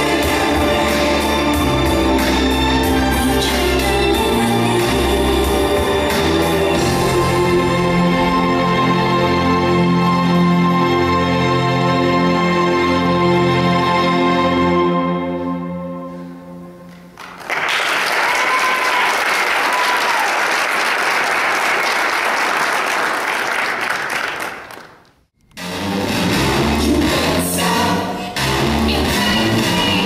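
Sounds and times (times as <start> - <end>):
music: 0.0 - 17.4, 25.4 - 30.0
audience applauding: 17.2 - 25.2
short high cheers: 17.9 - 20.8.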